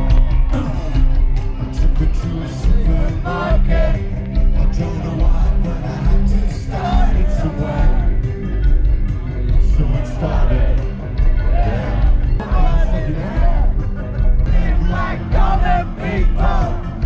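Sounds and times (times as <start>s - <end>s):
person singing: 0.0s - 8.3s
heavy bass line: 0.0s - 17.0s.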